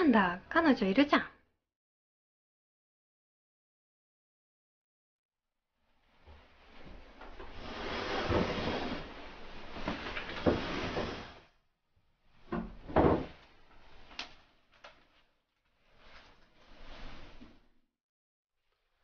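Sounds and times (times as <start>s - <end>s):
wooden sliding door rubbing: 6.2s - 11.6s, 12.3s - 14.6s, 15.7s - 17.7s.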